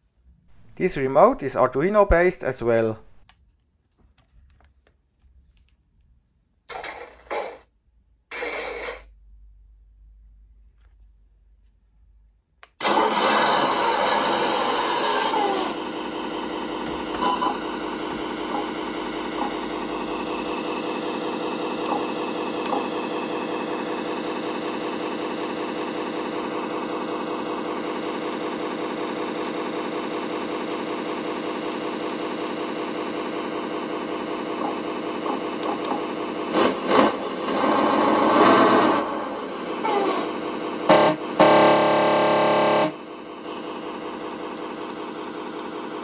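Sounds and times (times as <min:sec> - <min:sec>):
synthesised diesel engine idling: 0:12.8 - 0:46.0
engine throttle blips: 0:15.3 - 0:27.0, 0:33.8 - 0:43.1.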